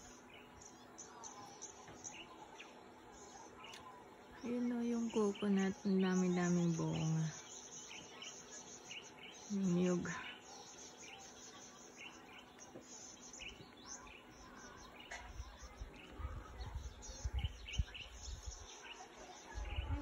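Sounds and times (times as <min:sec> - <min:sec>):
bird chirps: 0:00.0 - 0:20.0
low rumbling on microphone: 0:15.2 - 0:18.7.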